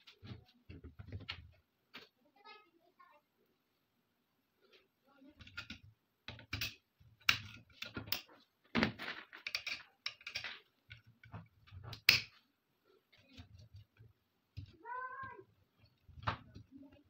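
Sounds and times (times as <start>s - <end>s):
metal gun parts clicking: 9.4s - 11.1s.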